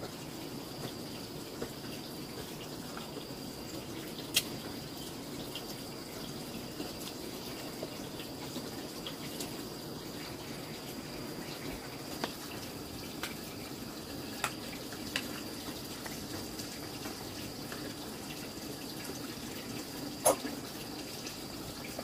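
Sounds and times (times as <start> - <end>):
water trickling: 0.0 - 22.0.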